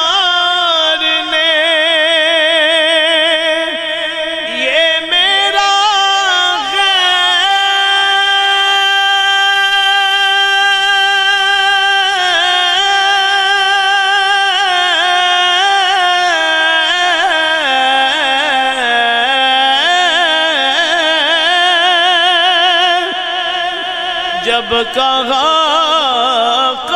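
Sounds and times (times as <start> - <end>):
man singing without instruments: 0.0 - 26.9.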